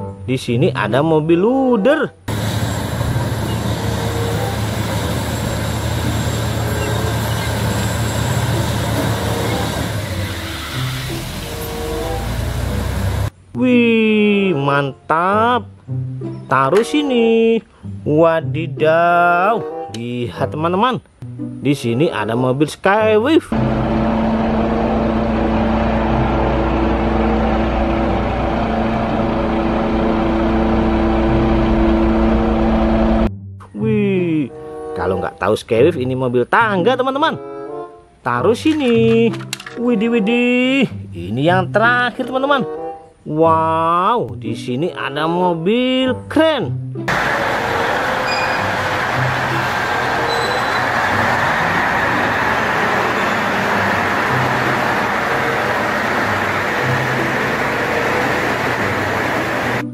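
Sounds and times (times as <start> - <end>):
bulldozer diesel engine under load: 2.3 - 13.3, 23.6 - 33.3, 47.1 - 59.9.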